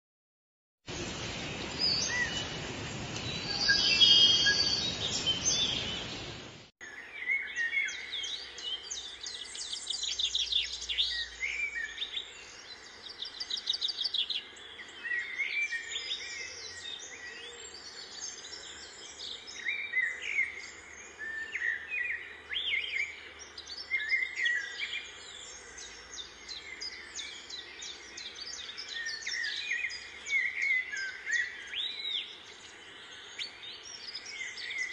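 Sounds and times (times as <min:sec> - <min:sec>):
loud dense hiss: 0:00.9 - 0:06.7
small birds chirping: 0:00.9 - 0:34.9.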